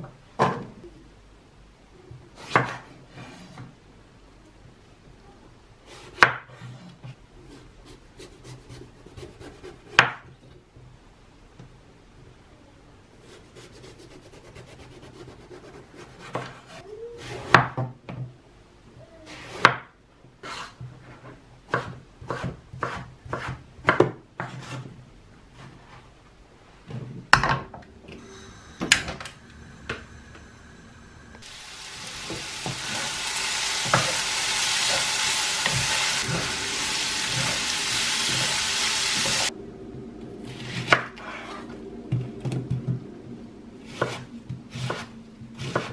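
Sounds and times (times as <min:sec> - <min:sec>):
vegetables sizzling in frying pan: 0:31.4 - 0:39.5.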